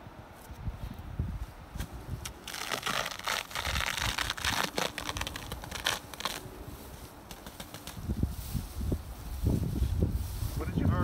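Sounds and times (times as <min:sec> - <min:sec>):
sharp crackling of seal tearing: 0:02.2 - 0:06.5.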